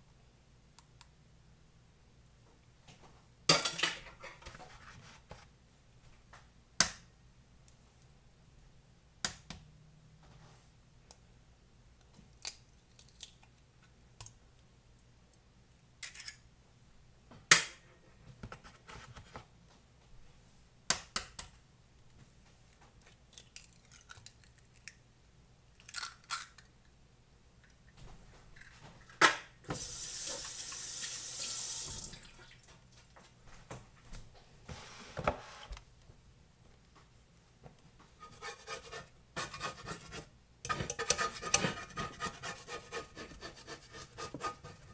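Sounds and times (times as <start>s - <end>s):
steady hiss: 29.6s - 32.2s.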